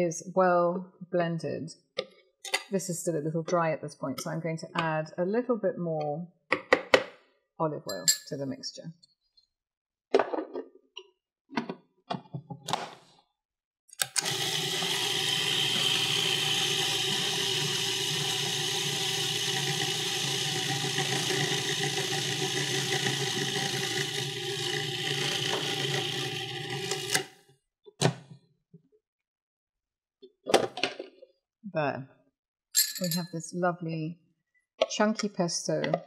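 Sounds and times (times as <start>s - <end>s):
food processor motor running: 14.0s - 27.4s.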